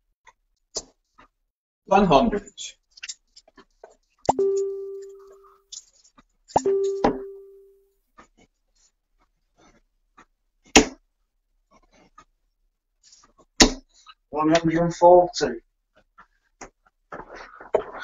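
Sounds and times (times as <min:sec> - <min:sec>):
ringing tone: 0:04.3 - 0:05.6, 0:06.6 - 0:07.8.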